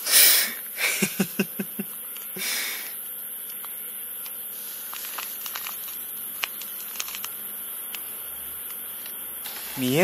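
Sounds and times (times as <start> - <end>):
steady high-pitched hiss: 0.0 - 10.0
paper crinkling: 4.6 - 7.3.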